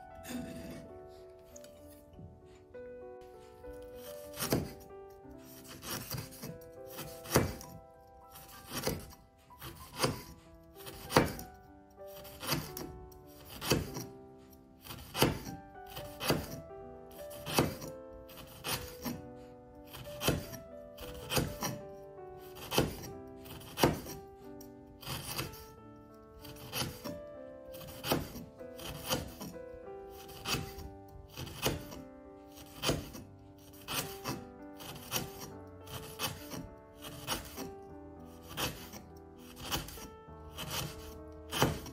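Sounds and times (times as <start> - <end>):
background music: 0.0 - 41.9
knife chopping on wooden board: 0.3 - 0.9, 4.0 - 4.9, 5.5 - 11.6, 12.2 - 14.1, 14.8 - 16.6, 17.4 - 19.2, 19.9 - 21.8, 22.5 - 24.2, 25.0 - 25.7, 26.5 - 29.5, 30.2 - 32.0, 32.6 - 33.2, 33.8 - 37.7, 38.4 - 41.9.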